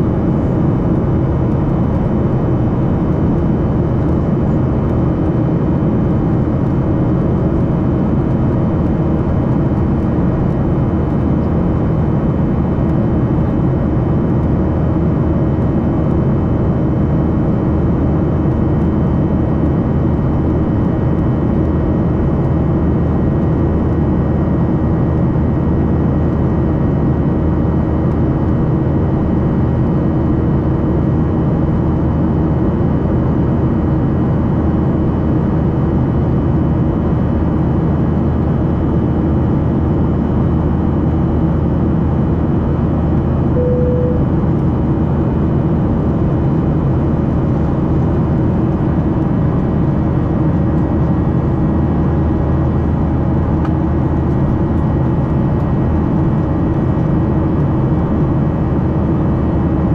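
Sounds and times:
airflow rush in cabin: 0.0s - 59.9s
jet engine hum: 0.0s - 59.9s
faint steady tones: 43.6s - 44.4s.

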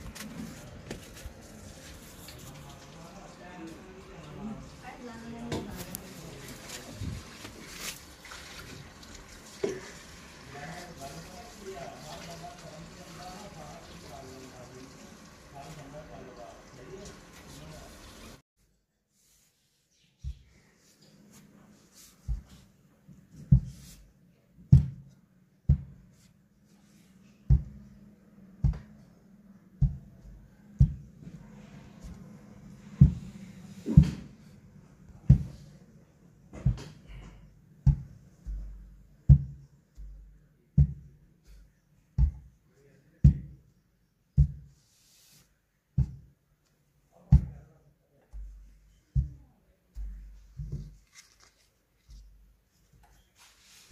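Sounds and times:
iron thudding on cloth: 23.4s - 24.0s, 24.7s - 25.1s, 25.7s - 26.1s, 27.5s - 27.9s, 33.9s - 34.3s, 37.8s - 40.2s, 44.4s - 44.7s.

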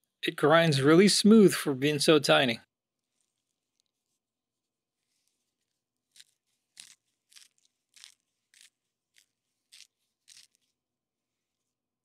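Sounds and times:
pepper grinder crunching: 6.0s - 10.8s.

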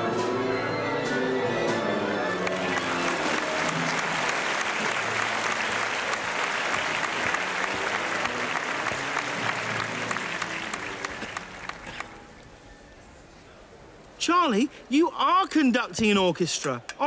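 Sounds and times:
audience applauding: 2.1s - 12.2s.

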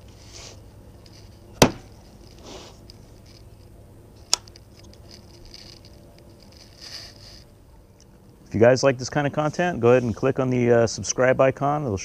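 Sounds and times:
handling rustles: 0.0s - 8.2s.

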